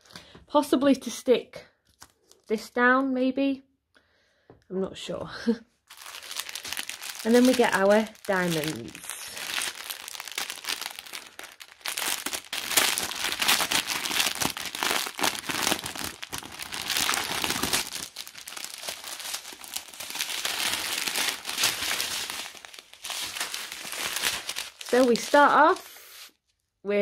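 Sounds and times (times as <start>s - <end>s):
plastic bags crinkling: 5.9s - 26.3s.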